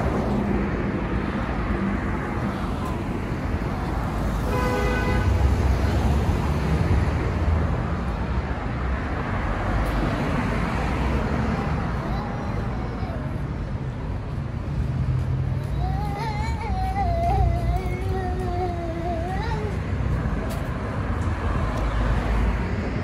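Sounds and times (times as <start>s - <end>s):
cars passing: 0.0s - 23.0s
car horn toot: 4.5s - 5.4s.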